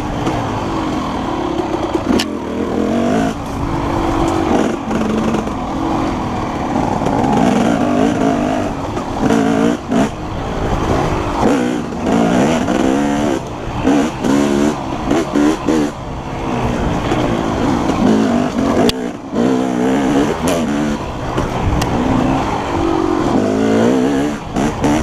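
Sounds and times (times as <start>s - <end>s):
dirt bike engine revving: 0.0s - 25.0s.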